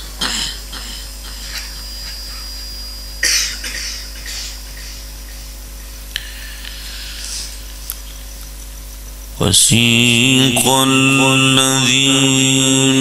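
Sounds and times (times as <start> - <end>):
microphone hum: 6.1 - 13.0.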